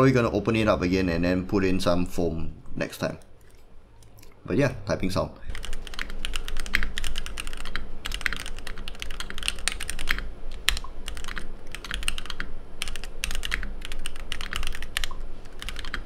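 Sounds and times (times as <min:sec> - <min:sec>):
mechanical keyboard typing: 0:05.5 - 0:16.0.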